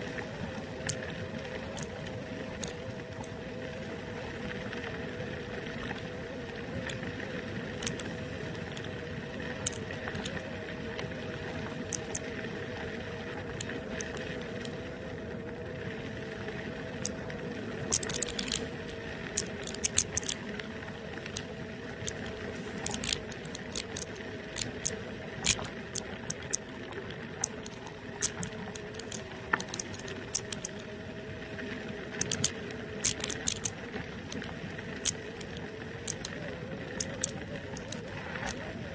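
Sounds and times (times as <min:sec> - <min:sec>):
clicks and rattles over bumps: 0:07.8 - 0:08.1, 0:09.6 - 0:10.4, 0:11.8 - 0:12.2, 0:17.9 - 0:18.8, 0:19.4 - 0:20.4, 0:21.3 - 0:26.7, 0:27.4 - 0:30.8, 0:32.2 - 0:38.6.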